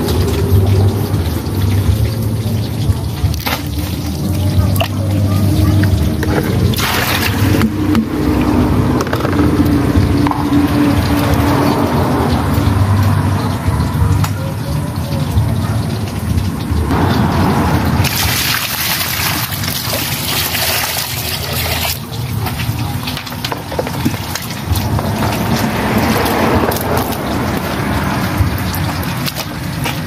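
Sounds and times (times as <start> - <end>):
water pouring and splashing: 0.0 - 30.0
water trickling: 0.0 - 30.0
low rumble: 4.0 - 14.2.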